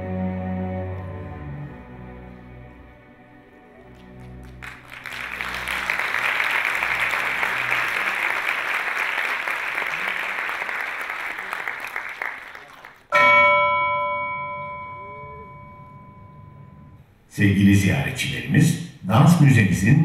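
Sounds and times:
low music notes: 0.0s - 8.4s
audience applauding: 3.8s - 13.2s.

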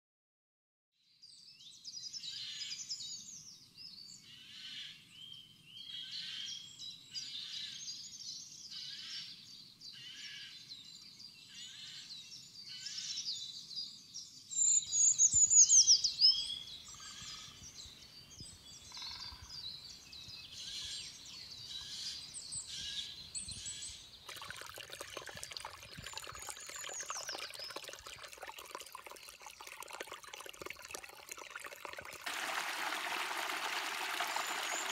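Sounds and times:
songbirds singing: 1.2s - 34.9s
brook trickling over leaves: 24.2s - 34.9s.

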